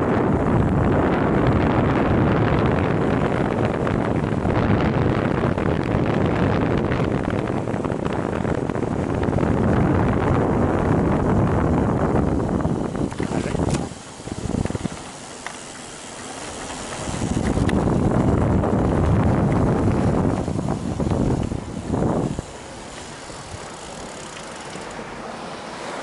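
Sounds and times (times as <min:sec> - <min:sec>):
wind buffeting microphone: 0:00.0 - 0:26.0
bike rattles and knocks: 0:12.4 - 0:25.1.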